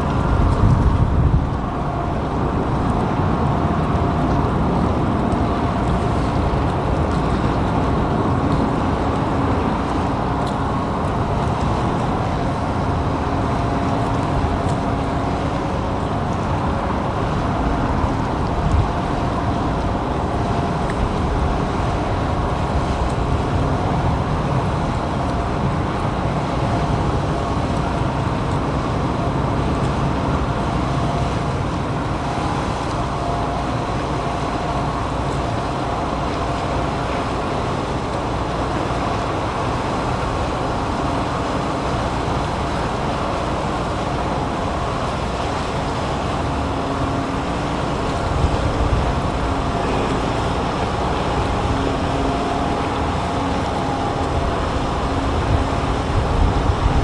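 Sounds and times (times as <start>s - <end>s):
faint steady hum: 0.0s - 57.0s
ship engines low rumble: 0.0s - 57.0s.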